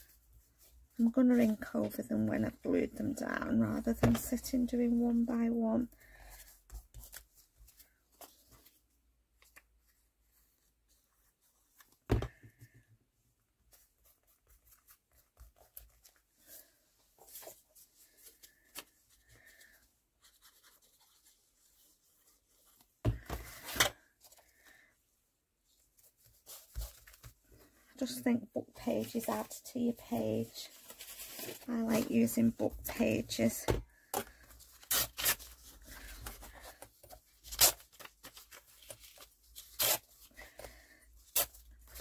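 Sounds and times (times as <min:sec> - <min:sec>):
paper rustling and rubbing: 0:13.6 - 0:23.6, 0:25.7 - 0:27.8.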